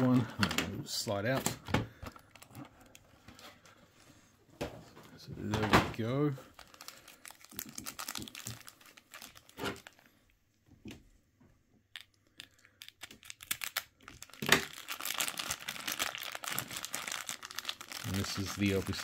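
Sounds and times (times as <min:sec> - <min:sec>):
plastic bag crinkling: 0:02.0 - 0:03.4, 0:06.0 - 0:10.2, 0:11.9 - 0:19.0.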